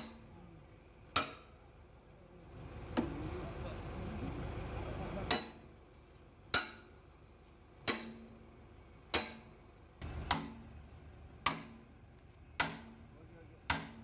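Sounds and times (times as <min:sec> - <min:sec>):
sledgehammer striking steel: 0:01.1 - 0:01.6, 0:05.3 - 0:05.6, 0:06.5 - 0:06.9, 0:07.8 - 0:08.4, 0:09.1 - 0:10.8, 0:11.4 - 0:11.9, 0:12.6 - 0:14.0.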